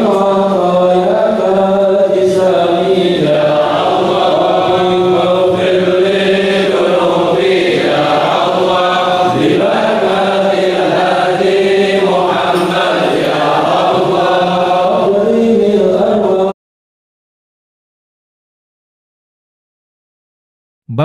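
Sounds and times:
men chanting a prayer: 0.0s - 16.6s.

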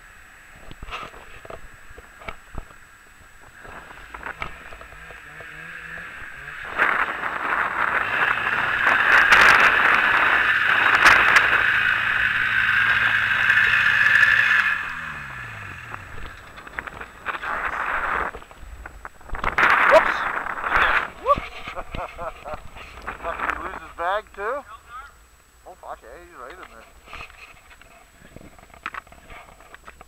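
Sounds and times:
snowmobile engines running: 0.0s - 30.0s.

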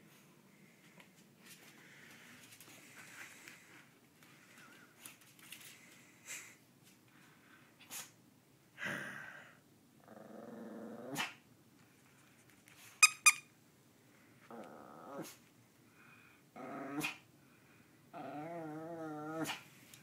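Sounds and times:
small dog play-growling: 10.0s - 11.4s, 14.5s - 15.4s, 16.6s - 17.2s, 18.1s - 19.6s.

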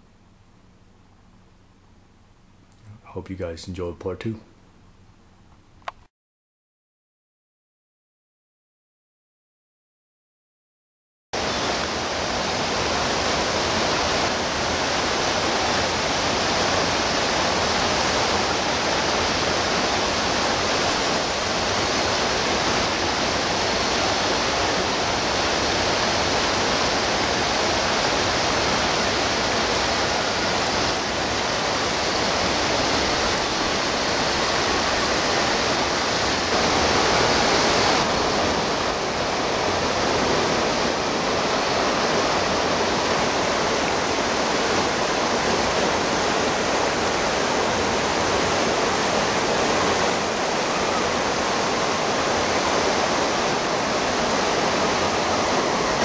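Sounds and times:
river water rushing over rock: 11.4s - 56.0s.

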